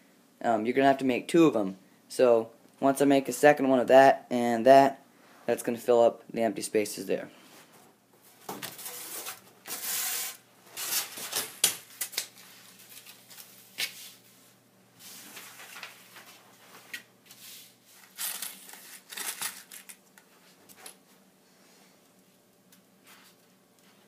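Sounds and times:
paper rustling and sliding on foam board: 8.5s - 11.5s, 12.4s - 19.1s.

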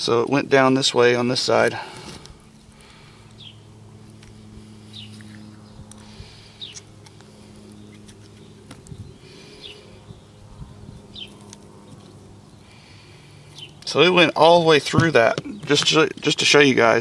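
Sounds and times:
low hum: 1.2s - 16.2s
bird chirping: 3.4s - 3.7s, 4.8s - 5.9s, 7.6s - 12.8s.

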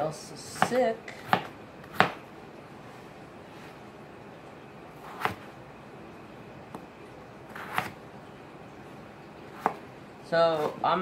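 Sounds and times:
knife chopping on plastic board: 0.5s - 2.3s, 5.0s - 5.5s, 7.5s - 8.0s, 9.6s - 9.8s.

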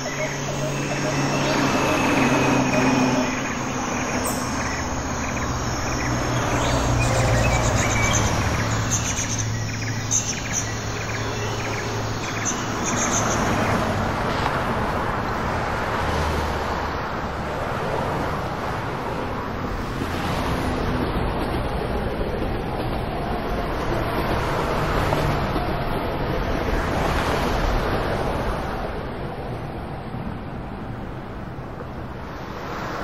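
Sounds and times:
small birds chirping: 0.0s - 13.7s
traffic noise: 0.0s - 33.0s.

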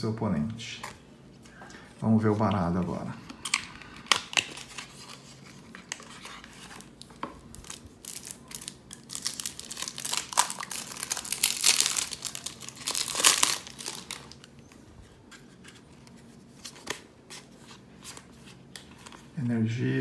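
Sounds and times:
plastic wrap crinkling and tearing: 3.4s - 14.6s.

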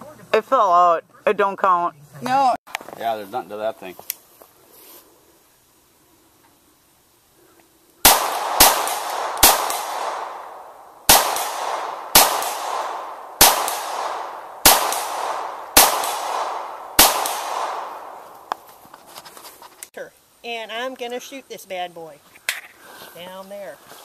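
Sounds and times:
pistol shots with echo: 8.0s - 18.4s.

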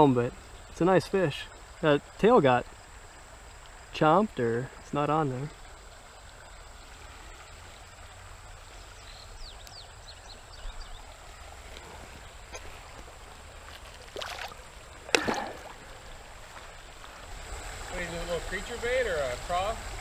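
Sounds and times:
fish splashing into water: 13.7s - 16.3s.

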